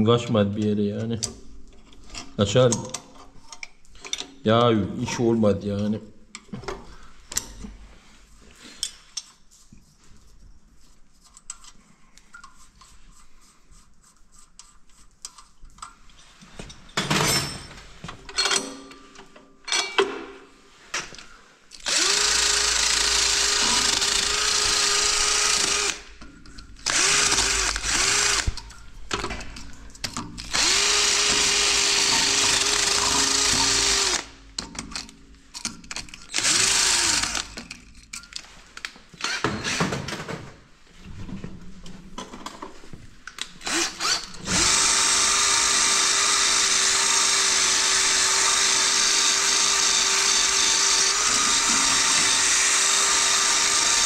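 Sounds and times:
power tool whine: 21.8s - 26.1s, 26.8s - 28.6s, 30.5s - 34.3s, 36.3s - 37.6s, 43.6s - 54.0s.

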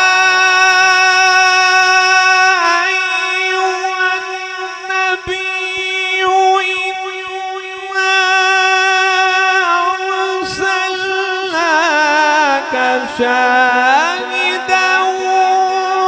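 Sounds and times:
man reciting melodically: 0.0s - 16.0s.

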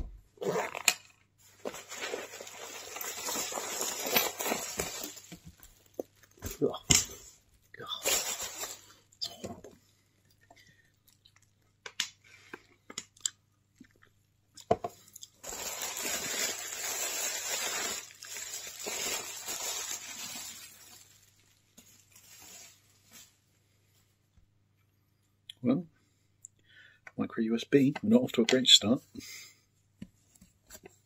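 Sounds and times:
bubble wrap crinkling: 0.4s - 9.1s, 15.3s - 23.5s.

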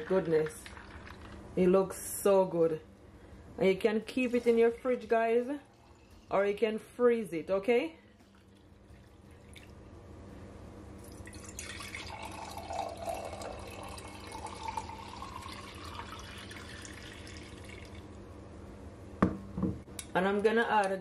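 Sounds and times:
liquid pouring into a jar: 8.2s - 9.8s, 11.0s - 18.1s.

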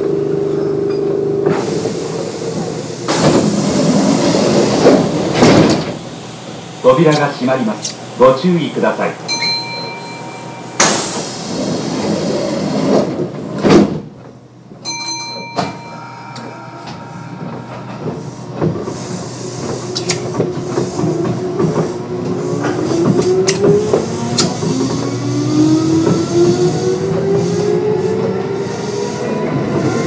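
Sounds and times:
train doors closing with a thud: 0.5s - 7.4s, 9.4s - 30.0s
short chime: 9.3s - 10.9s, 14.9s - 18.1s.

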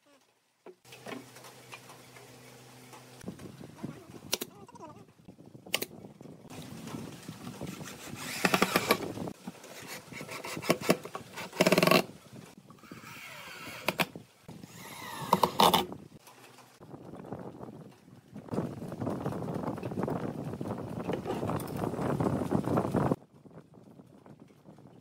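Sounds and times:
cordless drill motor whining: 8.2s - 9.1s, 14.7s - 15.8s.

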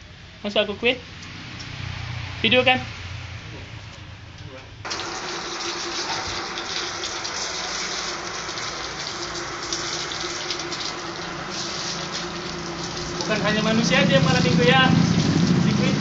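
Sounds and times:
hose water spraying: 4.8s - 16.0s.

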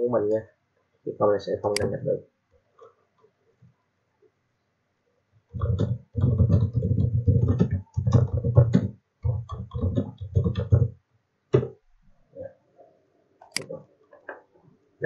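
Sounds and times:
computer keyboard typing: 5.5s - 10.9s.

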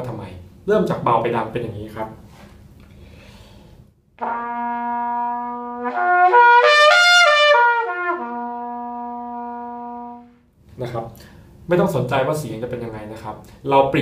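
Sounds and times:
trumpet playing a lip slur: 4.2s - 10.4s.

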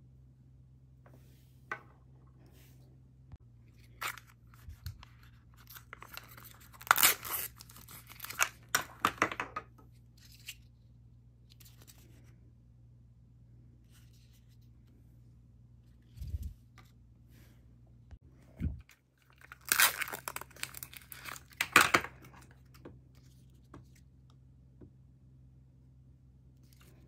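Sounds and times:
plastic packaging crinkling and tearing: 3.8s - 8.8s, 19.2s - 22.4s.

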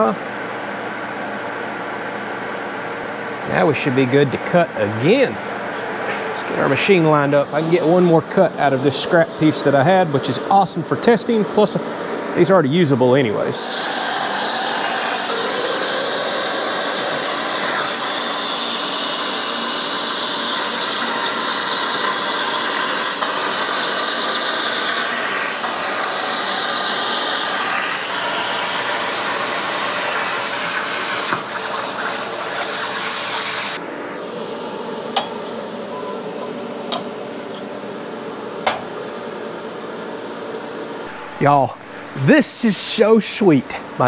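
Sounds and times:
plasma cutter hissing: 13.6s - 33.8s.

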